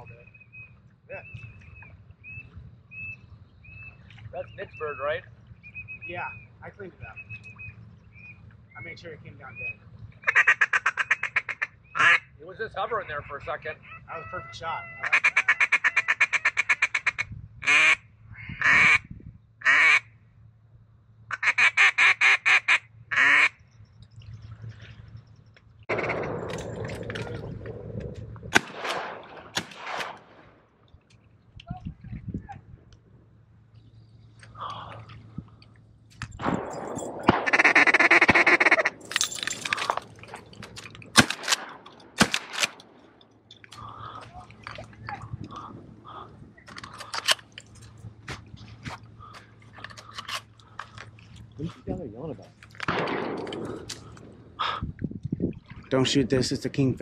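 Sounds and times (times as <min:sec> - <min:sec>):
duck call quacking: 0:10.2 - 0:20.1, 0:21.3 - 0:23.6, 0:37.4 - 0:39.0
sharp clicks: 0:36.1 - 0:43.9.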